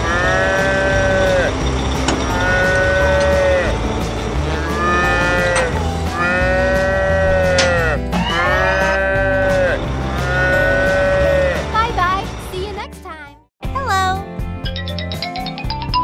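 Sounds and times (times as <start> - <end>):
cows mooing: 0.0 - 11.7
background music: 0.0 - 16.0.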